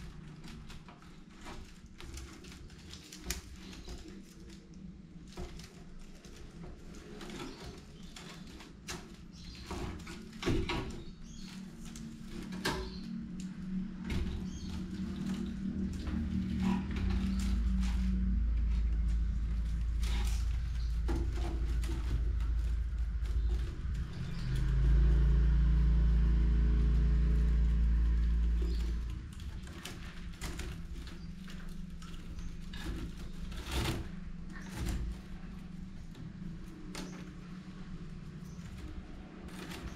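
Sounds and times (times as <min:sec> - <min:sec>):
low steady hum: 0:00.0 - 0:39.9
rattan basket creaking and rustling: 0:00.0 - 0:39.9
deep low rumble: 0:11.1 - 0:39.9.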